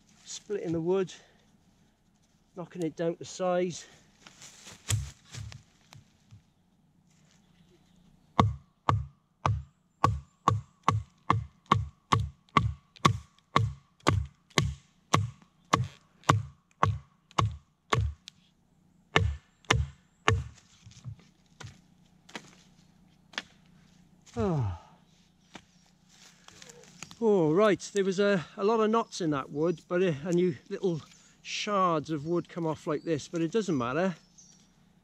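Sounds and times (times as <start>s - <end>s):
machete chopping into wood: 4.7s - 5.6s, 8.4s - 18.2s, 19.2s - 22.6s.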